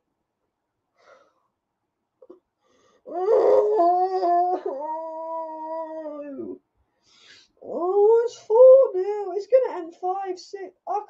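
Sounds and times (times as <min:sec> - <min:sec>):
woman moaning: 0:03.1 - 0:06.6.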